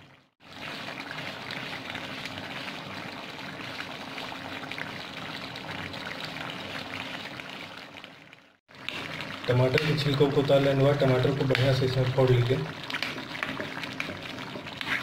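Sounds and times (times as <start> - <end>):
curry bubbling in a pan: 0.0 - 15.0.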